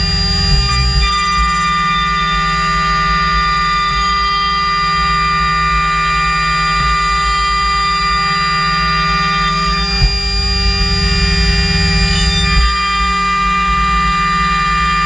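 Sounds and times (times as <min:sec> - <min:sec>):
router whining while cutting wood: 0:00.0 - 0:15.0.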